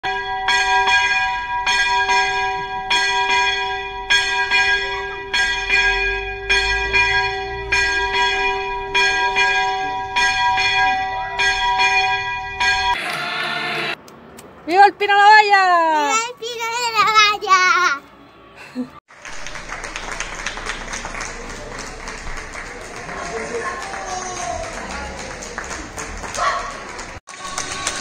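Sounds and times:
church bell ringing: 0.0s - 14.0s.

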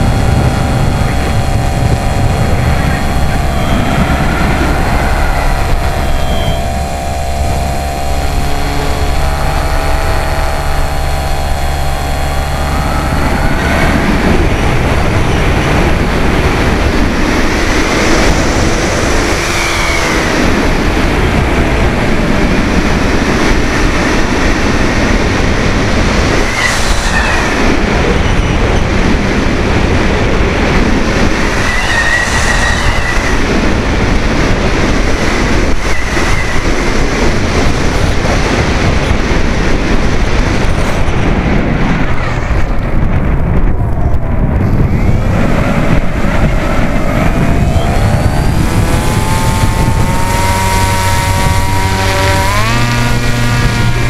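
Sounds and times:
model plane motor whine: 0.0s - 28.1s, 44.8s - 54.0s
rushing wind: 0.0s - 54.0s.

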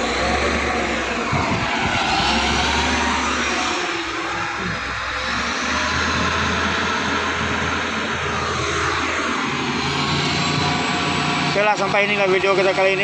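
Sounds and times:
diesel engine droning: 0.0s - 13.0s.

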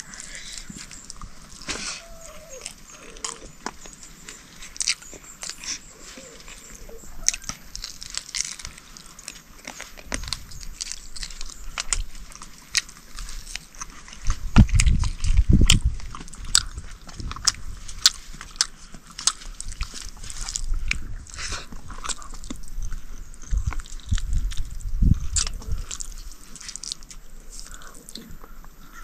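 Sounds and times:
person chewing food: 0.0s - 28.6s
crunching clicks: 7.2s - 28.8s.

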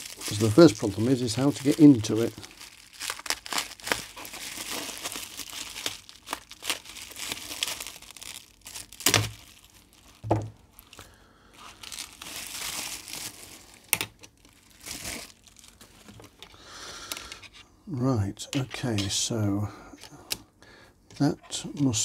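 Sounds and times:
bubble wrap crinkling: 0.0s - 16.5s.

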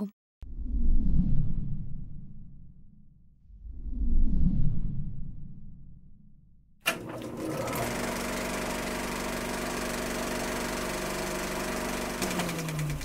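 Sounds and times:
film projector clattering: 6.9s - 13.0s.

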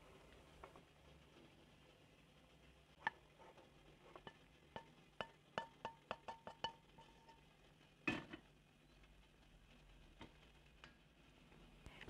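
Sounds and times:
utensil clinking on metal pot: 4.2s - 7.4s.

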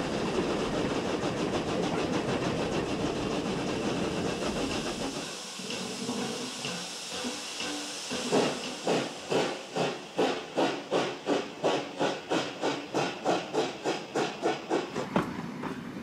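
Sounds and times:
steam locomotive blowing off steam: 0.0s - 15.7s.

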